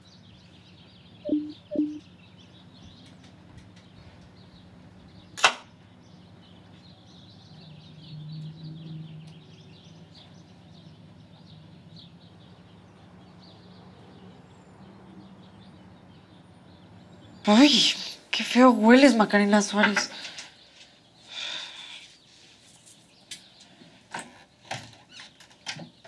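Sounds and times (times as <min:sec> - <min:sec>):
small birds chirping: 0:00.0 - 0:26.0
low steady hum: 0:01.2 - 0:02.8.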